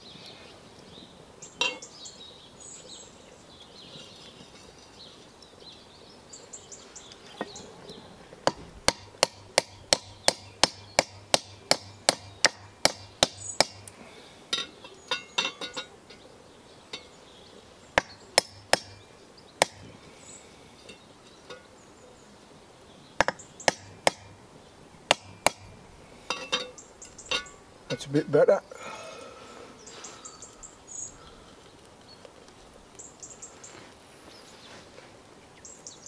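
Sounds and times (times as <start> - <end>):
tool knocking into burning stump: 8.4 - 13.9, 18.0 - 19.0, 23.2 - 24.3.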